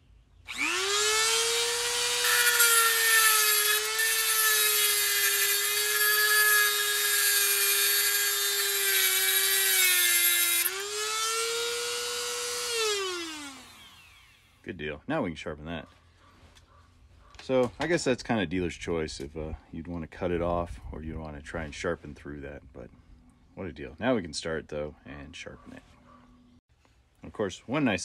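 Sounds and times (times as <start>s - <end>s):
rotary tool motor whining: 0.5s - 14.6s.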